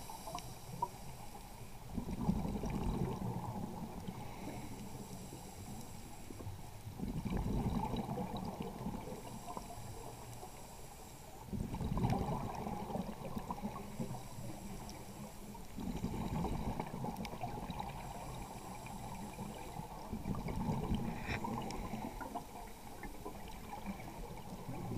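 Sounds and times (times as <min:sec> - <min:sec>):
regulator inhale hiss: 0:00.0 - 0:01.4, 0:04.1 - 0:06.5, 0:09.2 - 0:11.4, 0:13.8 - 0:16.4, 0:18.0 - 0:20.0, 0:21.0 - 0:23.0
exhaust bubbles gurgling: 0:01.9 - 0:04.2, 0:06.9 - 0:09.2, 0:11.5 - 0:14.6, 0:15.8 - 0:24.9.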